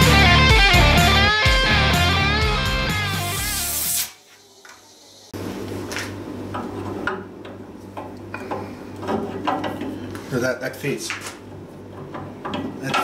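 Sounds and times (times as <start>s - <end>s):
background music: 0.0s - 4.0s.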